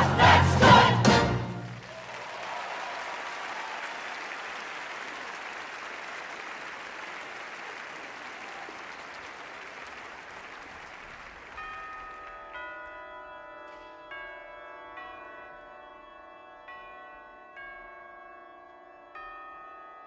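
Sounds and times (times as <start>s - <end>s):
audience applauding: 0.0s - 12.2s.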